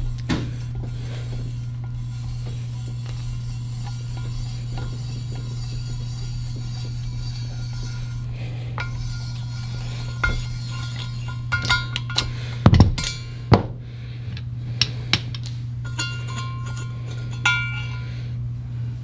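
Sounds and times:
metal-on-metal clinks: 15.8 - 18.2.

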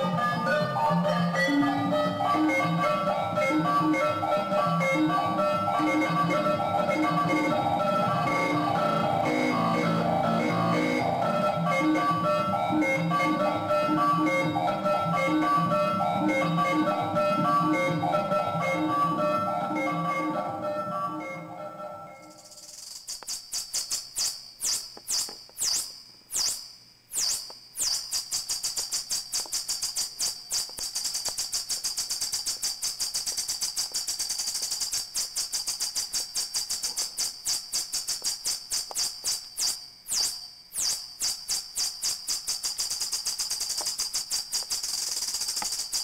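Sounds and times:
synthesizer chirps falling in pitch: 0.0 - 22.6.

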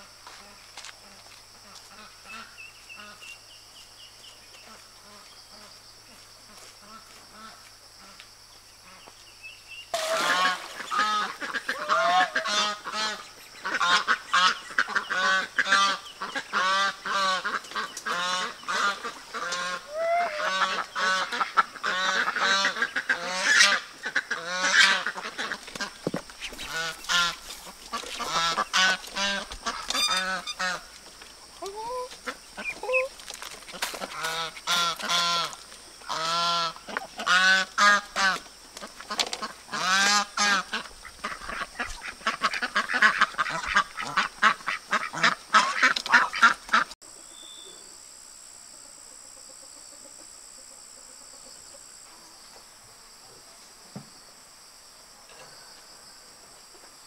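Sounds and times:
geese honking: 10.0 - 30.9, 31.7 - 33.1, 33.7 - 47.0.

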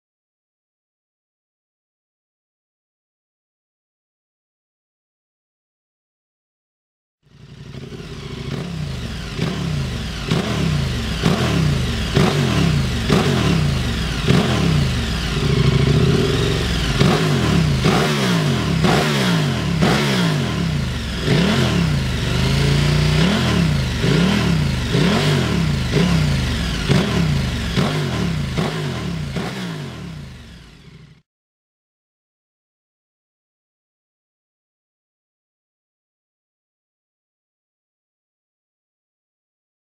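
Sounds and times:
motorcycle engine revving: 7.3 - 31.2.

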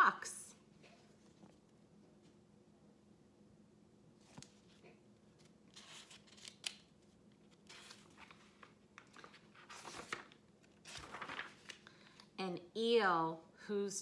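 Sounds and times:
book pages turning: 1.0 - 1.8, 4.2 - 12.3.

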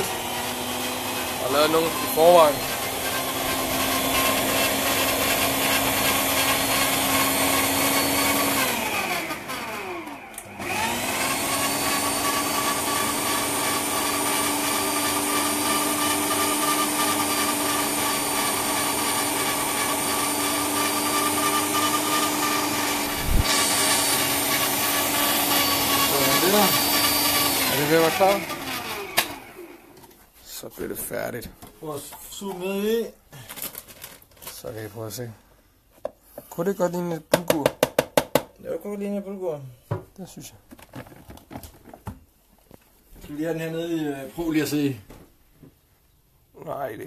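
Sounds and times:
food processor motor running: 0.0 - 29.9.

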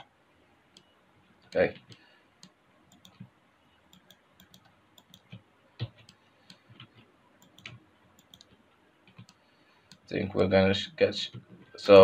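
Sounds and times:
mouse and keyboard clicks: 3.9 - 10.1.

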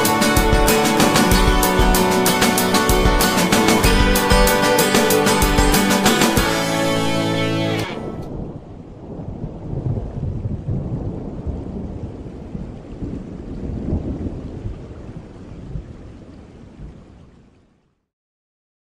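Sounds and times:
rain falling: 0.0 - 18.0.

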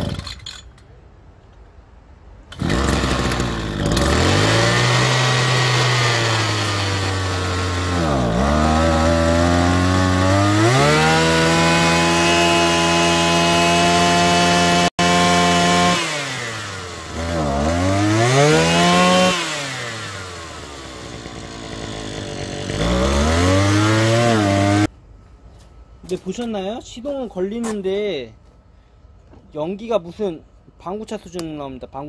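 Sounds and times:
brush cutter engine running: 2.6 - 24.9.

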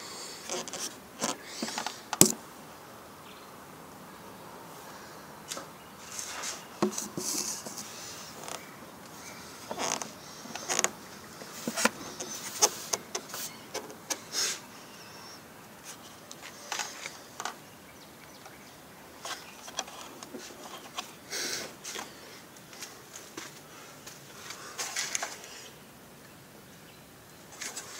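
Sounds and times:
hand scraping and tapping plastic: 0.5 - 2.4, 9.7 - 14.2.

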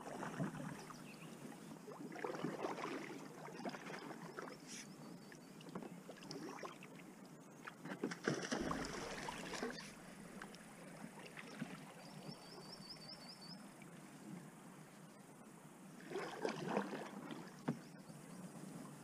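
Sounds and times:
paddle strokes splashing: 0.0 - 1.0, 1.9 - 5.0, 7.6 - 12.4, 16.0 - 17.9
water lapping against hull: 0.0 - 14.9, 15.9 - 19.0.

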